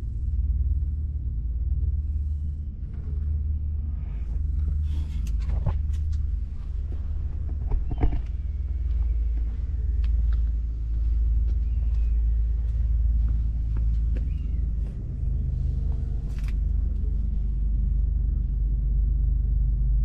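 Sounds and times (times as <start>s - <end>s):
steady low rumble: 0.0s - 20.0s
sharp clicks and knocks: 7.4s - 10.6s.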